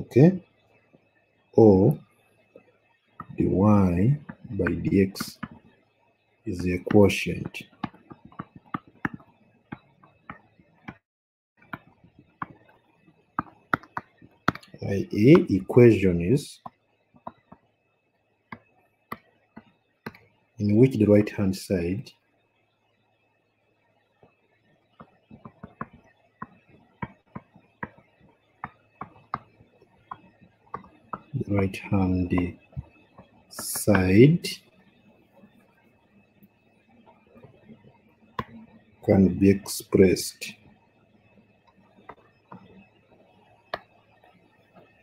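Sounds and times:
stylus tapping on tablet screen: 4.2 - 5.7, 6.6 - 11.0, 11.6 - 14.8, 16.6 - 17.7, 18.5 - 20.3, 25.0 - 31.4, 32.3 - 34.1, 38.4 - 38.7, 42.0 - 42.7.

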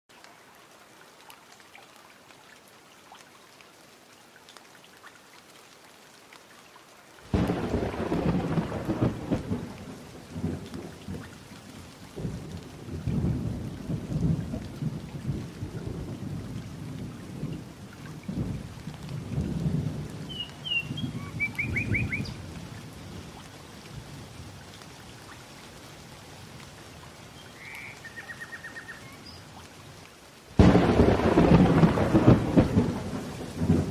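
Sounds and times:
faint hiss: 25.1 - 30.6.

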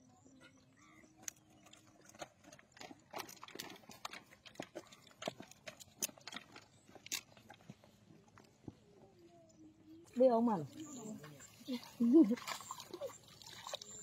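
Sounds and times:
faint irregular clicks and knocks: 1.2 - 8.8.

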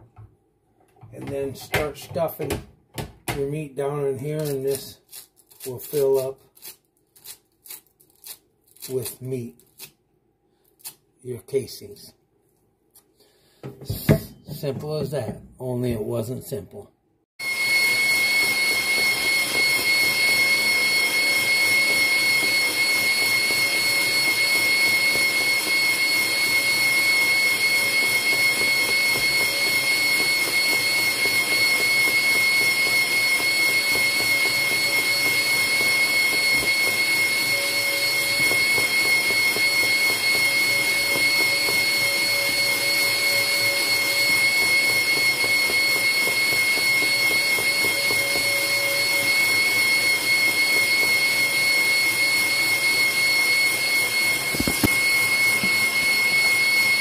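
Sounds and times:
stand mixer motor whining: 17.4 - 57.0.

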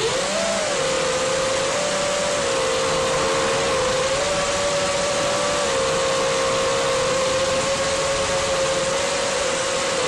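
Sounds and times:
drone motors whining: 0.0 - 10.0.

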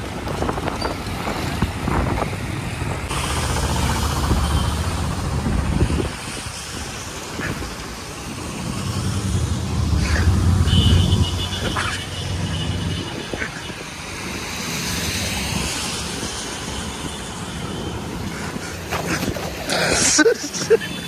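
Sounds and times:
traffic hiss on wet road: 0.0 - 21.0
vehicle rumbling past: 8.2 - 13.2.

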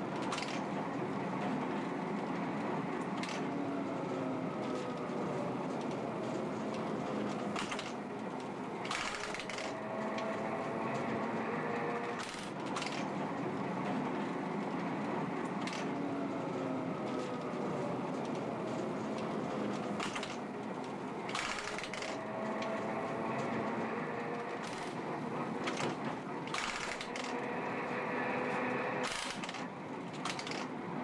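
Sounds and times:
tram rattling rumble: 0.0 - 31.0
sharp clacks: 6.7 - 10.3, 19.2 - 22.8, 29.0 - 30.8.

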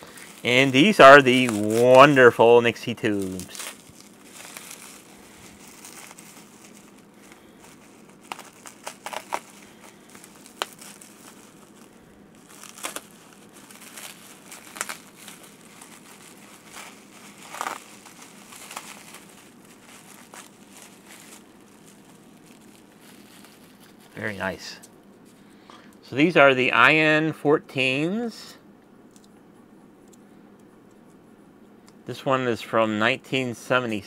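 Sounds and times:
knife cutting bubble wrap: 0.0 - 2.4, 3.0 - 24.2
bubble wrap crinkling: 0.0 - 25.4.

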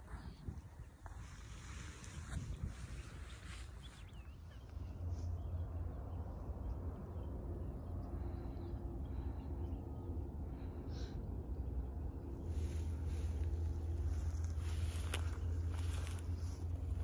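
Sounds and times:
wind buffeting microphone: 0.0 - 8.1.

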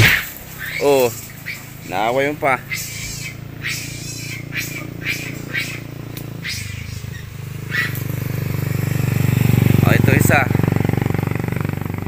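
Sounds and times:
monkeys high-pitched calls: 0.0 - 8.1
vehicle engine running: 0.0 - 12.0.

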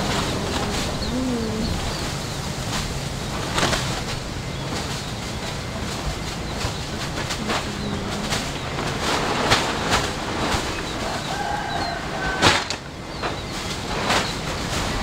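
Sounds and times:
faint bird chirps: 0.0 - 2.4
jet airliner taxiing: 0.0 - 12.4
wind buffeting microphone: 0.0 - 15.0.

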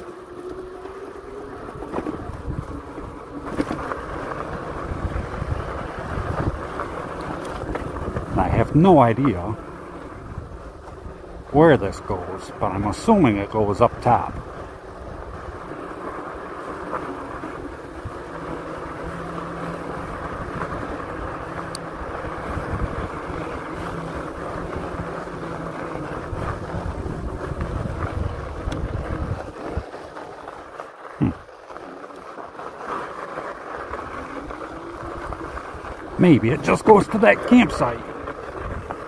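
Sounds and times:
tyre rumble on dirt trail: 0.0 - 39.0
wind rushing over microphone: 1.8 - 29.9.

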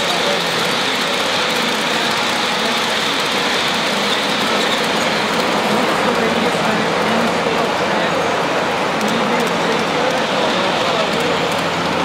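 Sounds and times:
locomotive motors: 0.0 - 7.8
model train wheels rolling on rail: 0.0 - 12.0.

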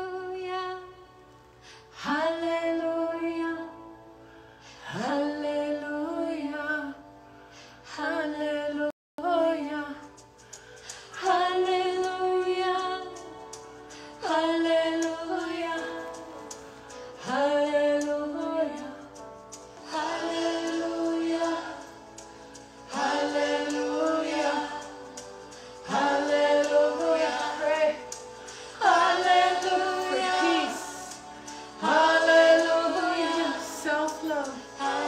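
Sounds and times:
woman singing a chant: 28.8 - 35.0.

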